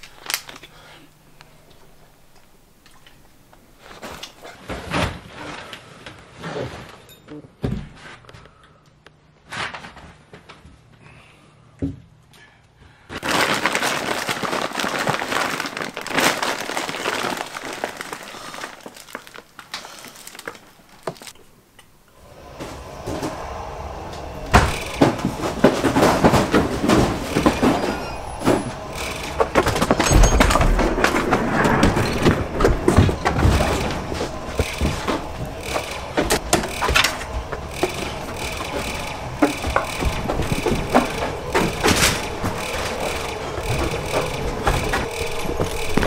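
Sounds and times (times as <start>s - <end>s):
plastic bag crinkling: 13.2s - 21.4s.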